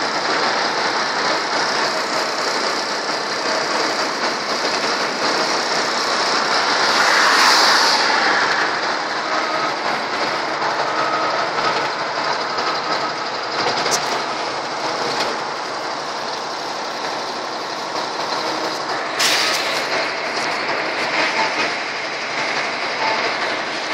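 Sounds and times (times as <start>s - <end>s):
vehicle engine and road noise: 0.0s - 23.9s.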